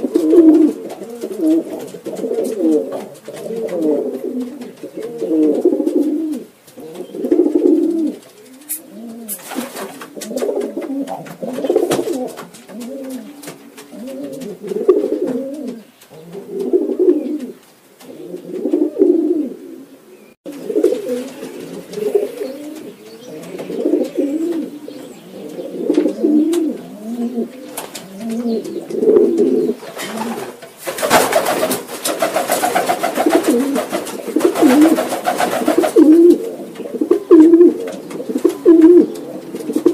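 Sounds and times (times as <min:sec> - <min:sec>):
pigeons cooing: 0:00.0 - 0:39.9
pigeon wings fluttering: 0:07.7 - 0:15.0, 0:29.4 - 0:36.4.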